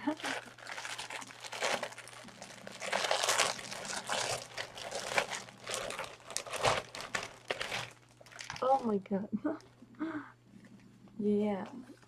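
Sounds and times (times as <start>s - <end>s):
packaging crinkling and rustling: 0.0s - 9.0s.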